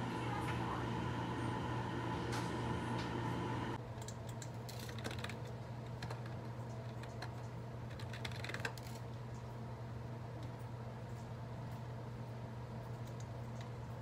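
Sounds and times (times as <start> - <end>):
hum with whine: 0.0 - 3.8
typing on keyboard: 4.0 - 9.0.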